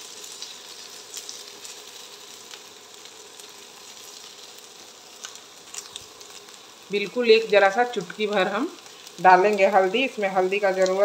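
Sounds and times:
vegetables sizzling in a wok: 0.0 - 11.0.

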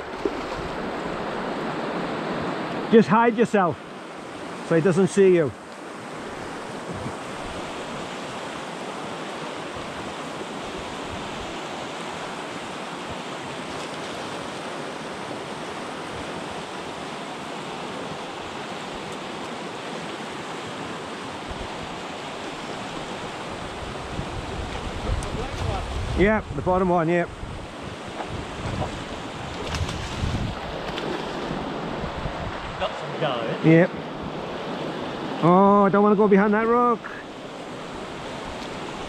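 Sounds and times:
river rushing over rapids: 0.0 - 29.6.

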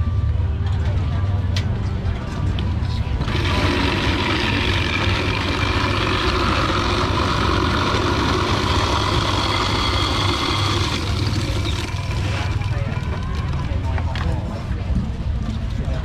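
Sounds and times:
constant low hum: 0.0 - 16.0
ice-shaving machine grinding ice: 3.2 - 14.0.

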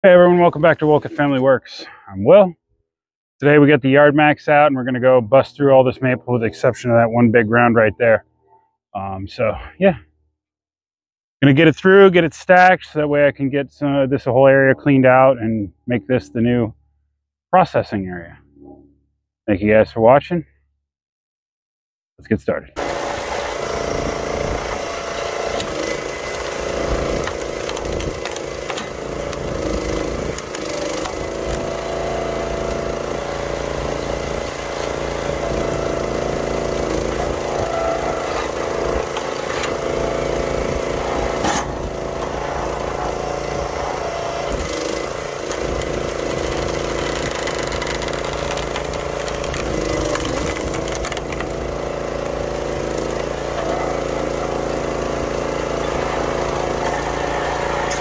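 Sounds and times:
small gas engine running: 22.8 - 58.0
wood cracking: 25.6 - 31.8, 44.6 - 52.4.

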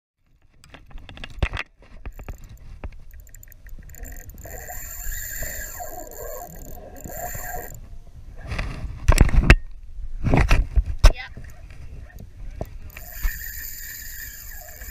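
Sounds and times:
fishing reel whirring: 2.1 - 7.8, 12.7 - 14.9.

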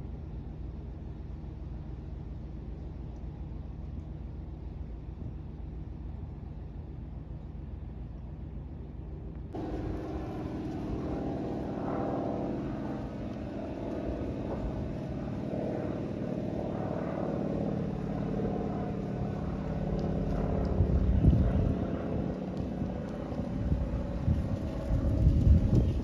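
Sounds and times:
propeller plane flying overhead: 0.0 - 26.0
wind buffeting microphone: 9.5 - 26.0.

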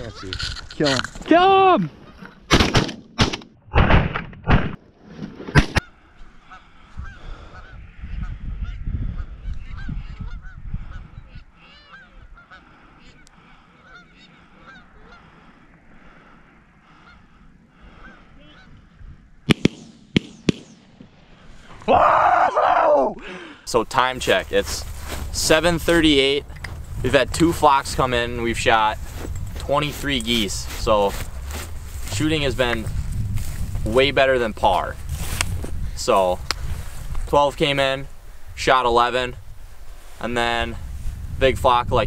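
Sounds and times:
shotgun shots: 2.5 - 4.8, 19.4 - 21.3
geese honking: 5.8 - 19.0.

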